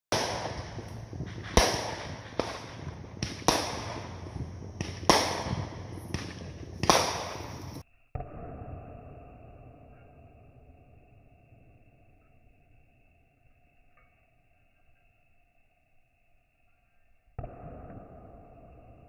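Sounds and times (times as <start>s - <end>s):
fireworks bangs: 0.1s - 7.8s
fireworks pops: 0.1s - 7.8s.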